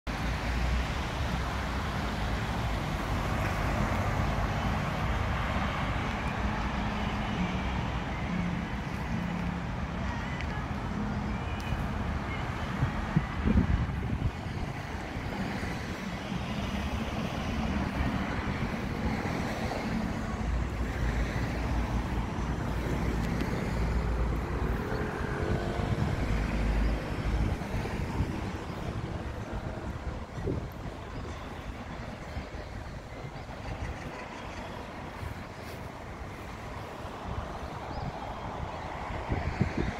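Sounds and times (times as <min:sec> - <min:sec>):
road traffic noise: 0:00.0 - 0:39.9
passing engines drone: 0:00.4 - 0:39.9.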